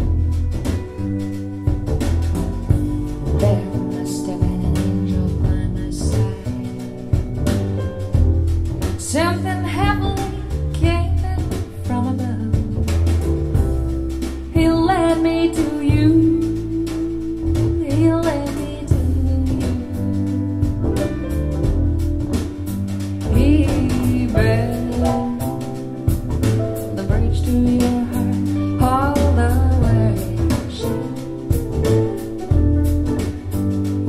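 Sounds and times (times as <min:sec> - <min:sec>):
guitar bass and drum beat: 0:00.0 - 0:34.0
woman singing: 0:03.2 - 0:07.2, 0:09.0 - 0:12.9, 0:14.5 - 0:20.7, 0:23.3 - 0:26.1, 0:26.8 - 0:31.5.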